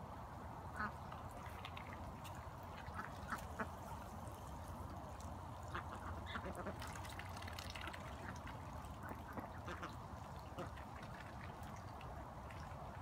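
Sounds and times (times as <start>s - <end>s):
duck bills clicking wetly: 0.8s - 3.8s, 5.1s - 13.0s
water from garden hose: 1.1s - 13.0s
ducks quacking: 2.8s - 4.0s, 5.6s - 7.1s, 7.8s - 11.4s.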